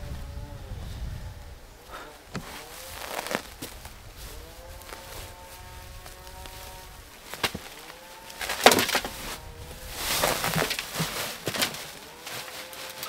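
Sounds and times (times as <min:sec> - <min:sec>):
faint buzzing hum: 0:00.0 - 0:13.0
sack rustling: 0:01.9 - 0:13.0
sack thumping on wheelbarrow: 0:08.4 - 0:13.0.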